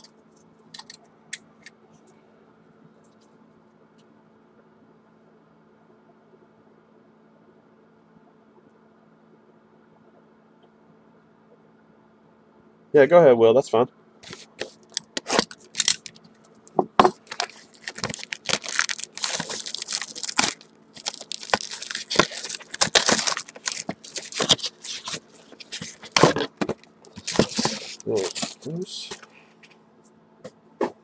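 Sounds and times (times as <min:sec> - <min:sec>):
cellophane crinkling and tearing: 0:14.2 - 0:29.3.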